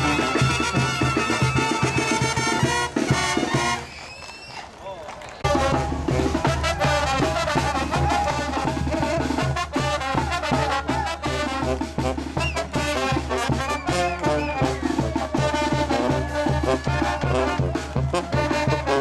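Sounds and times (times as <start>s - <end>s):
snare drum: 0.0s - 4.0s, 5.4s - 19.0s
marching brass band playing: 0.0s - 4.1s, 5.4s - 19.0s
trumpets: 0.0s - 4.6s, 5.4s - 19.0s
bass drum beat: 5.4s - 19.0s.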